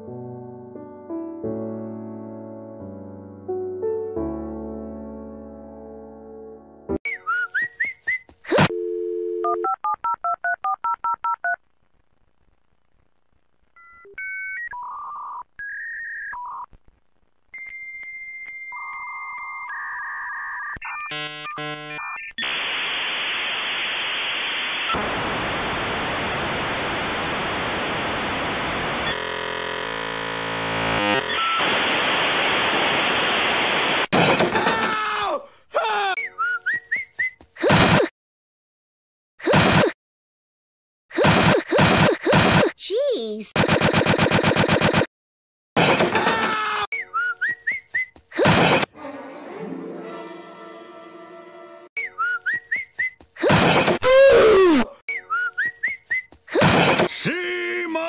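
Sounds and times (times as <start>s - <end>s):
dial tone: 8.6s - 11.6s
cartoon yell: 34.6s - 36.2s, 54.0s - 55.0s.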